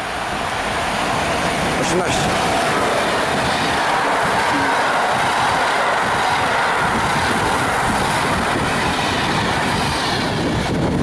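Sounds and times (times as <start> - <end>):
passenger train passing at speed: 0.0 - 11.0.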